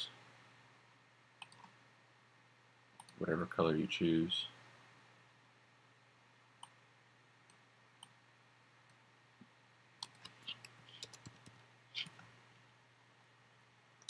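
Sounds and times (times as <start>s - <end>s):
mouse and keyboard clicks: 1.4s - 1.8s, 10.0s - 12.3s.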